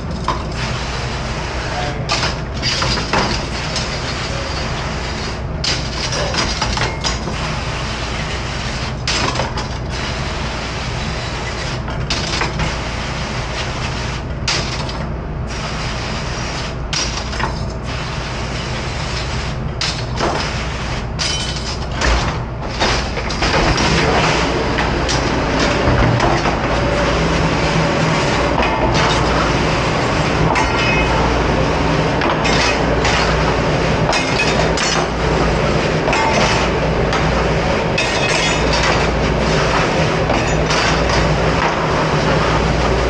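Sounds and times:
machinery hum: 0:00.0 - 0:43.0
metal utensils clattering: 0:38.0 - 0:39.2.

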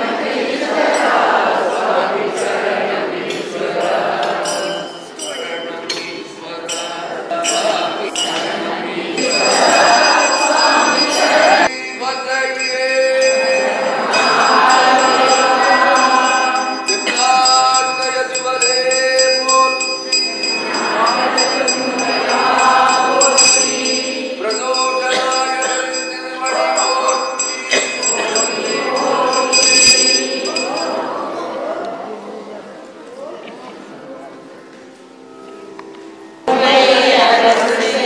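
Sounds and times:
devotional music: 0:00.0 - 0:38.0
bell ringing: 0:03.8 - 0:31.4.

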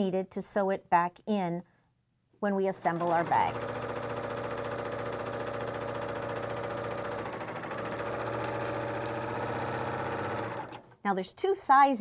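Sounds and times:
serger sewing machine running: 0:02.8 - 0:11.0.

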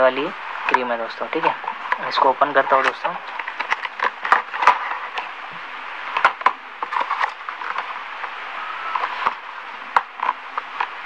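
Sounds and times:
cardboard carton crackling: 0:02.0 - 0:05.3, 0:06.1 - 0:11.0.

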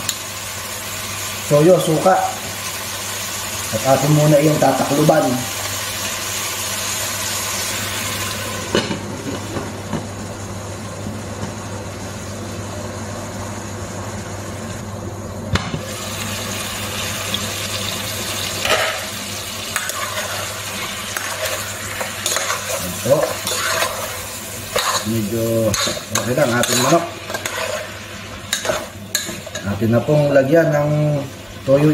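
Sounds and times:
chicken sizzling in a pot: 0:00.0 - 0:31.9
spoon scraping against pot: 0:19.7 - 0:29.8.

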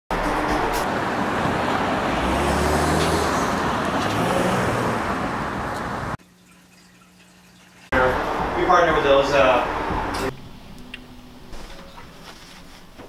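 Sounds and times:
cars driving past: 0:00.1 - 0:06.2, 0:07.9 - 0:11.6.

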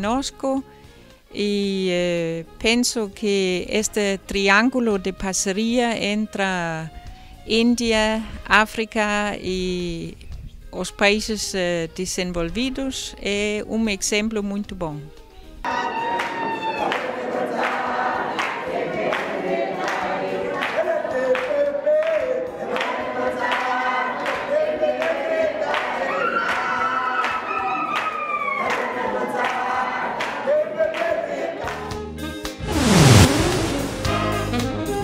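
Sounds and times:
group singing: 0:15.7 - 0:27.4, 0:28.6 - 0:32.0
hand clapping: 0:18.4 - 0:22.2.

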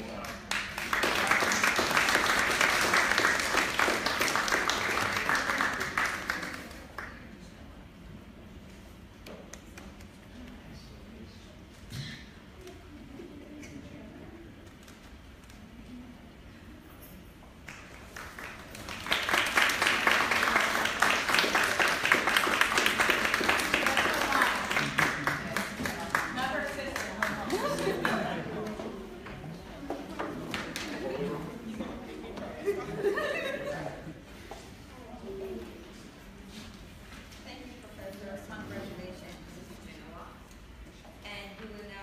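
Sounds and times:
audience applauding: 0:00.0 - 0:07.1, 0:17.7 - 0:28.9.

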